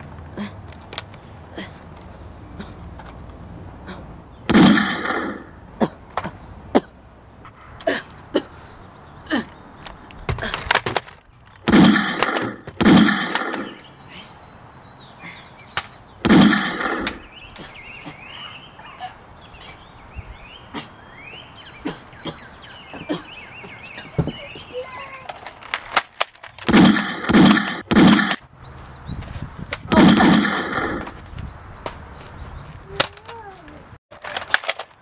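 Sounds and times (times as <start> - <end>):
toy blaster firing pops: 4.5 - 5.4, 10.6 - 13.8, 15.8 - 17.2, 25.3 - 28.4.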